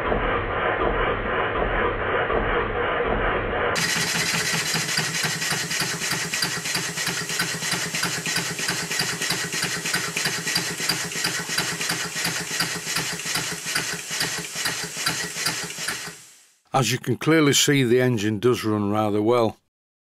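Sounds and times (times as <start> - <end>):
model steam engine exhaust beats: 3.7 - 16.6
crank and valve gear clatter: 3.8 - 16.2.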